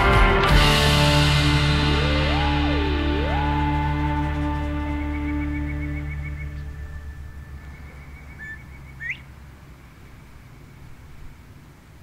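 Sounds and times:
background music: 0.0s - 8.2s
bird two-note whistle: 2.0s - 9.2s
faint bird trill: 2.0s - 11.8s.

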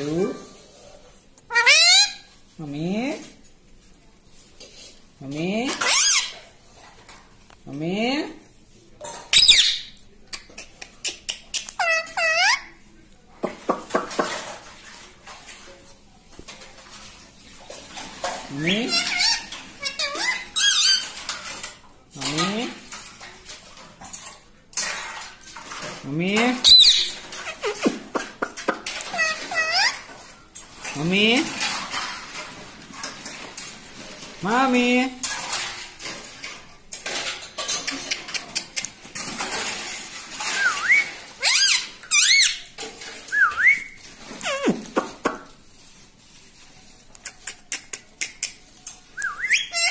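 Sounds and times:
parakeet warbling calls: 1.5s - 2.2s
parakeet whistling: 49.2s - 49.9s.

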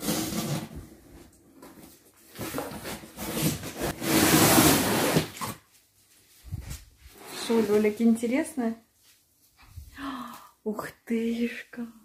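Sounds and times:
cardboard rustling and scraping: 0.0s - 5.8s.

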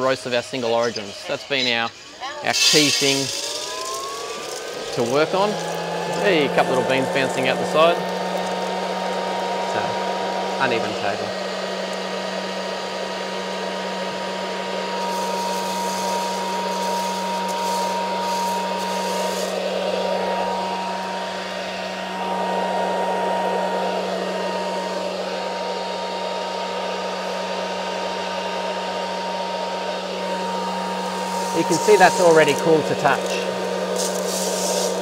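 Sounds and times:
cooling fan whirring: 0.0s - 35.0s
coffee beans rustling: 2.5s - 8.7s, 14.9s - 20.3s, 31.0s - 35.0s.

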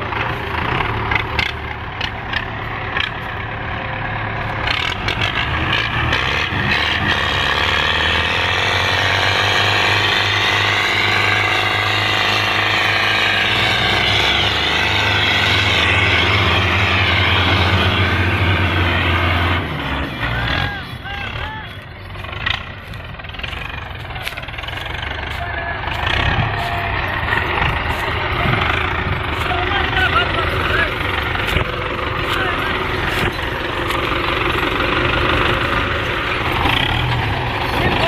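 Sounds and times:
tractor diesel engine revving: 0.0s - 38.0s.

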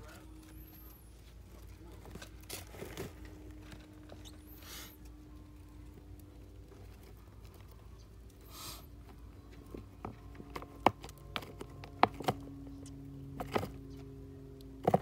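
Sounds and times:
hiss-like rush of noise: 8.5s - 8.9s.

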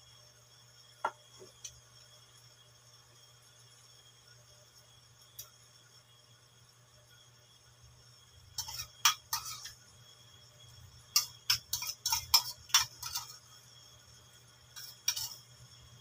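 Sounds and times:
cutlery clinking on crockery: 8.6s - 9.8s, 11.1s - 13.4s, 14.7s - 15.5s.

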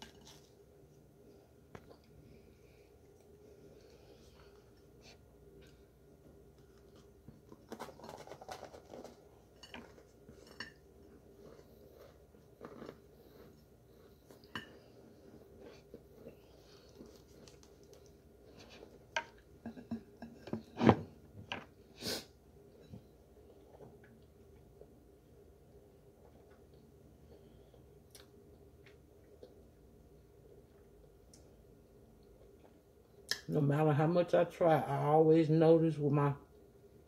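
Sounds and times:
biting and chewing crumbly starch: 0.0s - 2.2s, 2.9s - 19.5s.

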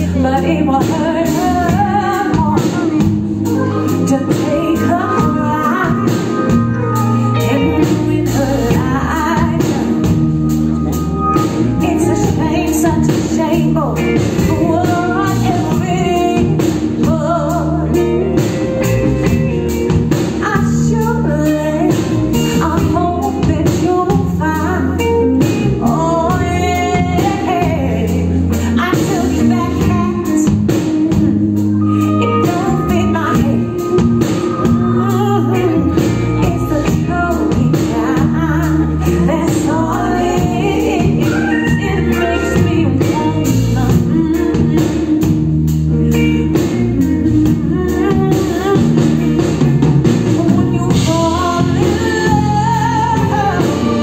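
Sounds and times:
live band playing blues-soul: 0.0s - 54.0s
woman singing into a microphone: 0.0s - 54.0s.

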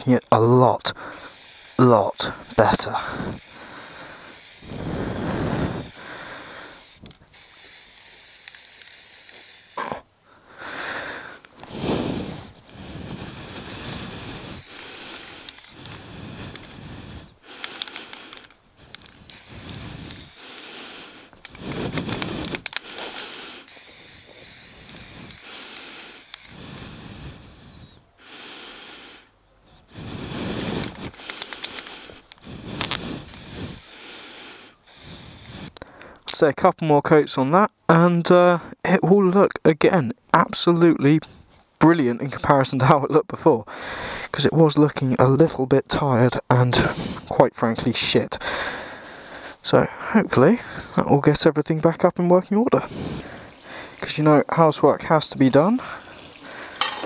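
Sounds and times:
spray paint can hissing: 0.9s - 29.2s, 29.8s - 35.8s, 46.8s - 47.4s, 52.8s - 57.0s.

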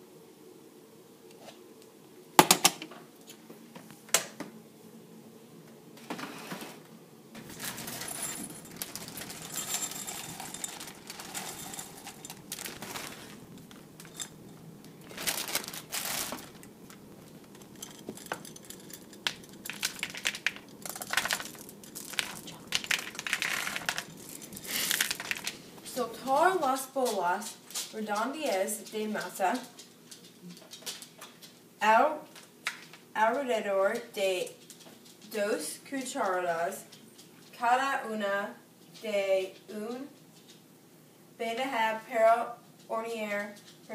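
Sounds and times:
chocolate chips poured into bowl: 7.4s - 25.6s
packet rustling: 7.4s - 26.0s.

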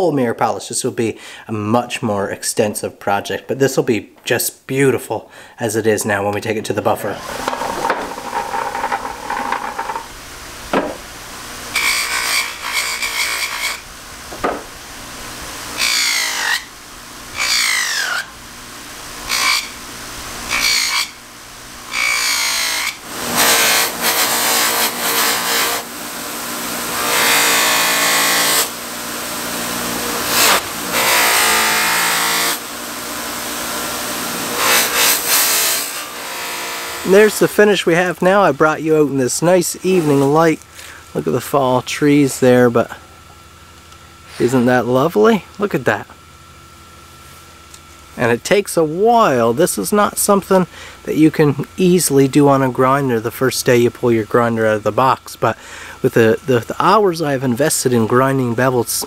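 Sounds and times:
blade scraping on buffing wheel: 7.0s - 10.2s
bench grinder motor hum: 7.0s - 13.8s, 21.8s - 37.4s.

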